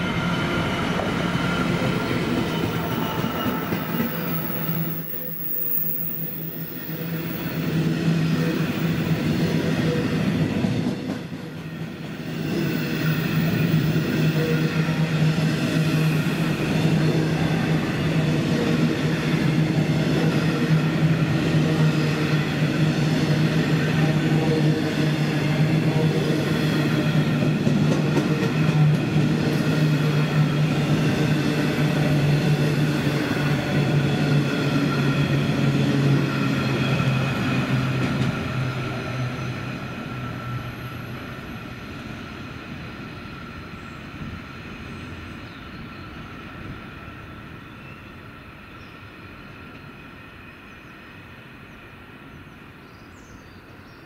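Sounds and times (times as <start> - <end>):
freight train rolling past: 0.0 - 54.0.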